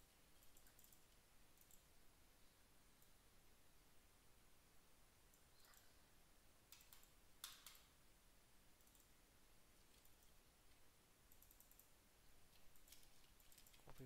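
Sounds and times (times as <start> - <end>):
computer mouse clicks: 0.3 - 1.9, 5.3 - 6.0, 6.7 - 7.9, 8.8 - 9.2, 9.8 - 11.9, 12.5 - 14.0.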